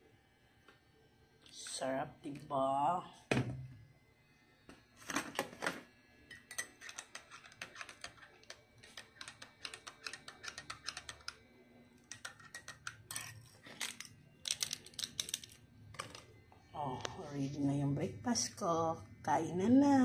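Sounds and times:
spoon clinking in glass mug: 0:06.3 - 0:07.0.

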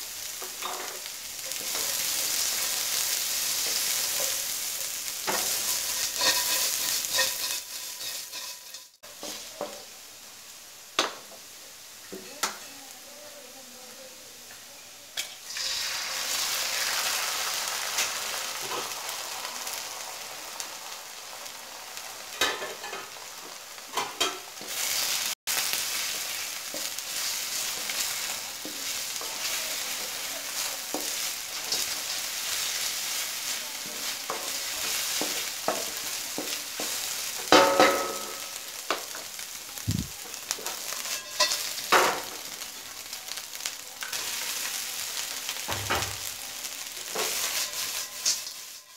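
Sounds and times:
egg sizzling in hot oil: 0:00.0 - 0:12.6, 0:15.1 - 0:48.9
spatula scraping and knocking pan: 0:00.4 - 0:09.8, 0:26.0 - 0:39.2, 0:40.5 - 0:42.3.

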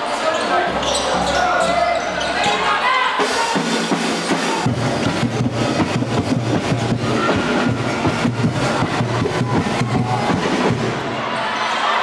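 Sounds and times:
fast drumming: 0:03.2 - 0:11.2.

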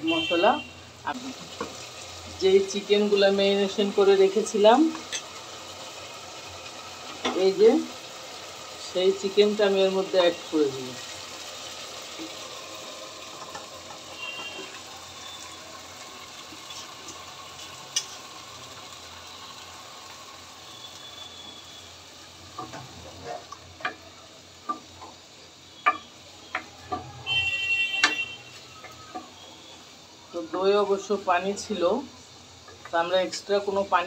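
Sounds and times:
food sizzling in a pot: 0:00.0 - 0:34.0
wooden spoon scraping a pot: 0:16.5 - 0:18.2.

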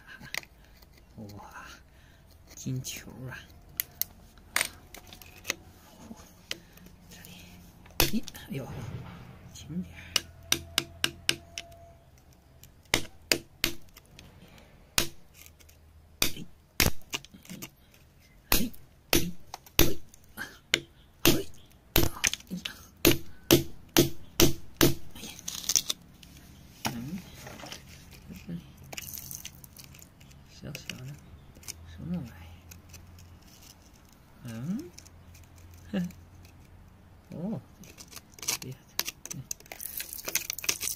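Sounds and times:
metal tool chipping rock: 0:08.0 - 0:08.4, 0:10.0 - 0:11.8, 0:12.6 - 0:14.0, 0:15.0 - 0:15.5, 0:16.2 - 0:17.7, 0:18.5 - 0:25.9, 0:37.8 - 0:40.9.

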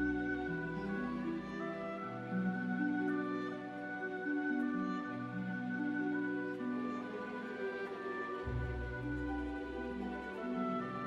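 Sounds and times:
slow ambient music with held notes: 0:00.0 - 0:11.0.

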